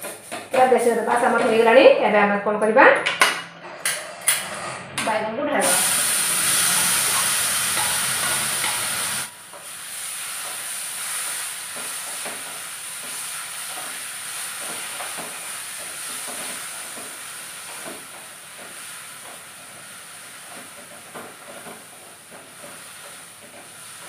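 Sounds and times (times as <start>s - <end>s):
vegetables sizzling in oil: 5.6s - 24.0s
spatula scraping and stirring: 6.5s - 12.4s.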